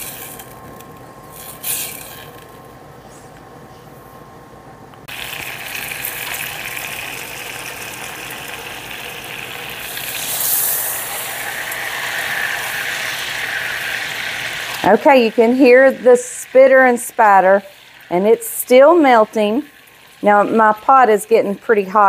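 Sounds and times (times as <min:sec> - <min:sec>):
butter sizzling in a saucepan: 0:05.1 - 0:22.0.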